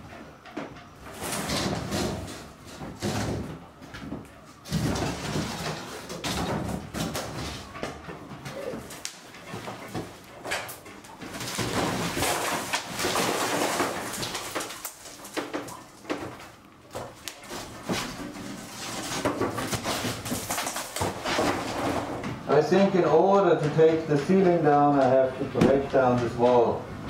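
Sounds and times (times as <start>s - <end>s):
boards creaking: 0.0s - 27.0s
wood scraping and knocking: 0.6s - 26.7s.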